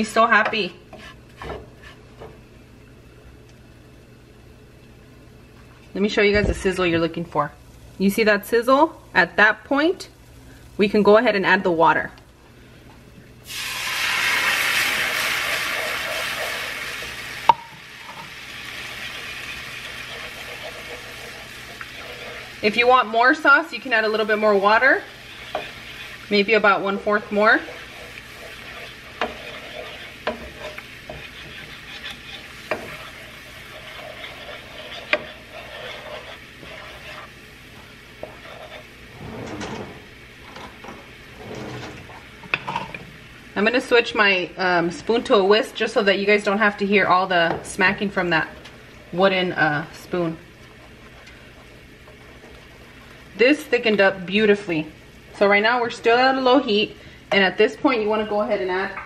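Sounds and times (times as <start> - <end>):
wooden spoon stirring sauce: 0.9 - 2.1, 18.4 - 38.9, 50.6 - 53.3
sizzling hiss of hot oil: 13.4 - 39.0.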